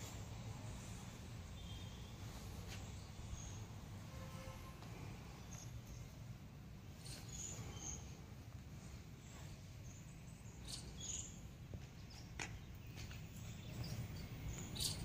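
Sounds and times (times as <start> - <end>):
low background noise: 0.0 - 15.0
faint high bird chirps: 1.4 - 3.6, 9.2 - 15.0.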